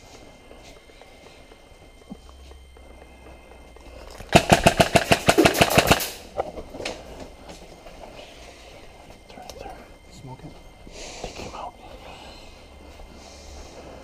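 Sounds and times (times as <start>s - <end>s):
airsoft gun rapid firing: 4.3s - 6.3s.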